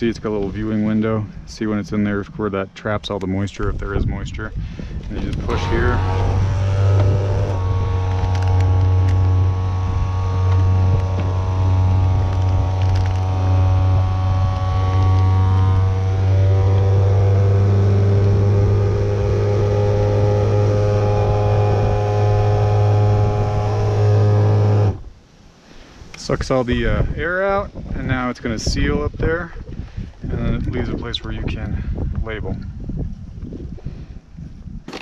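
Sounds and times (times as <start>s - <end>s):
vacuum sealer pump humming: 5.3s - 25.0s.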